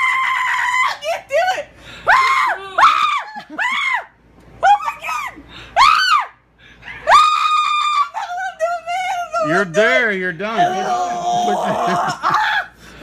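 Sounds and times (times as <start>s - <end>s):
girl screaming: 0.0s - 6.4s, 7.0s - 8.6s, 10.6s - 12.7s.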